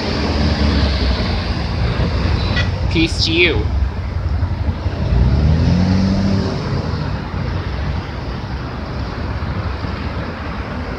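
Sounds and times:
road traffic rumble: 0:00.0 - 0:10.9
vehicle engine hum: 0:00.0 - 0:10.9.

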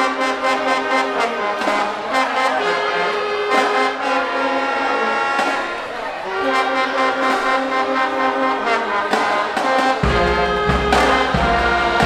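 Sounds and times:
marching band brass and woodwinds: 0:00.0 - 0:12.0
snare and bass drum: 0:09.0 - 0:12.0.

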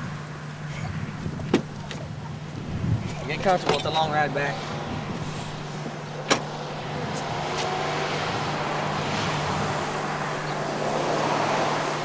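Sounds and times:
road traffic rushing: 0:00.0 - 0:12.0
car trunk lid slamming: 0:01.4 - 0:01.8, 0:06.2 - 0:06.6.

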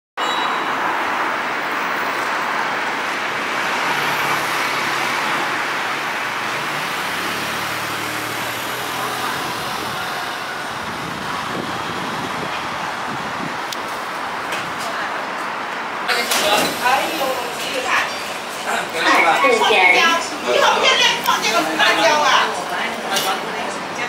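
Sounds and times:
street traffic noise: 0:00.2 - 0:24.0.

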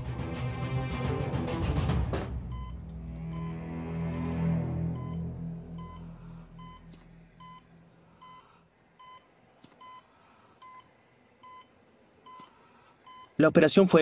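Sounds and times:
low dark music: 0:00.0 - 0:08.2
patient monitor beeping: 0:02.5 - 0:13.4.

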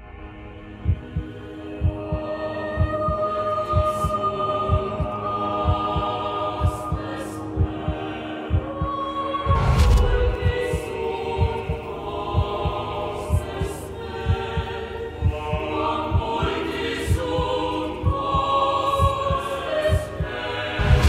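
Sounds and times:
choir-like held notes: 0:00.0 - 0:21.0
low pulsing beat: 0:00.8 - 0:11.8.

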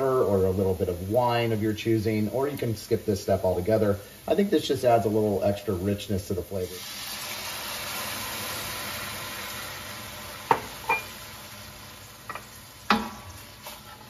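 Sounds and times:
stock sizzling in a hot pan: 0:00.0 - 0:14.0
utensils knocking against pan: 0:12.3 - 0:13.2.

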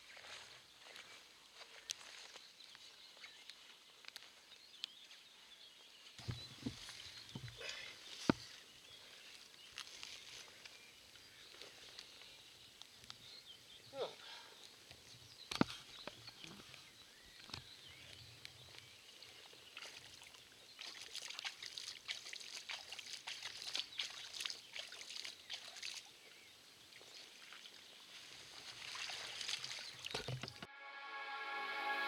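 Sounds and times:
water splashing and trickling: 0:06.2 - 0:07.9, 0:19.2 - 0:30.7.

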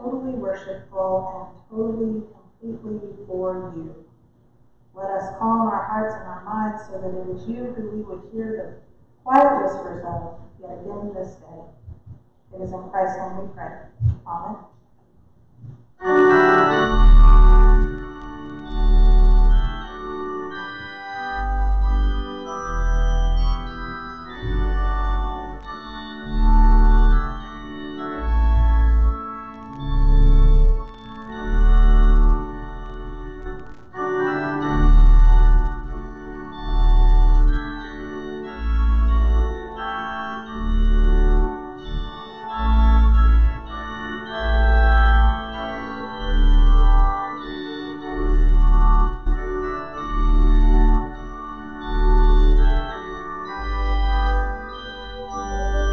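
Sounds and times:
organ playing sustained chords: 0:05.0 - 0:11.9, 0:16.0 - 0:55.9
deep organ bass note: 0:16.0 - 0:20.5, 0:21.3 - 0:39.8.

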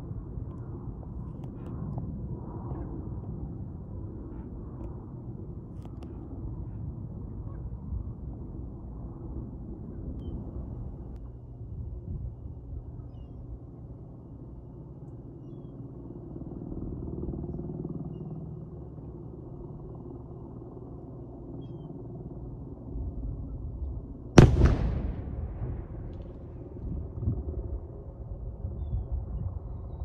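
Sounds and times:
steady low rumble: 0:18.7 - 0:30.0
explosive charge boom: 0:24.4 - 0:26.5.

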